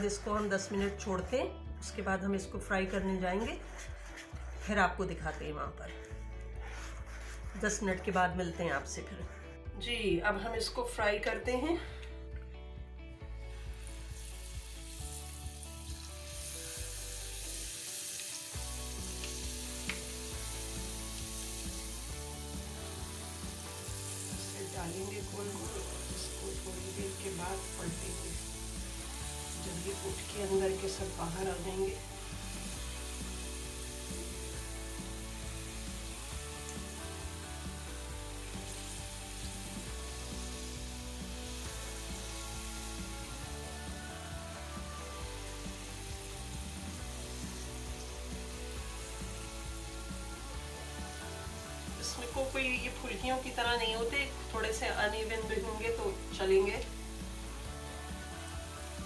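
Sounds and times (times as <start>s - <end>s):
background music: 0.0s - 59.0s
hot oil sizzling: 13.2s - 59.0s.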